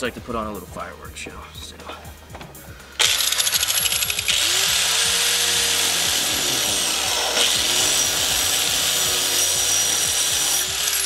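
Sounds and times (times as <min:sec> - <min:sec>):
angle grinder grinding metal: 0:03.0 - 0:11.0.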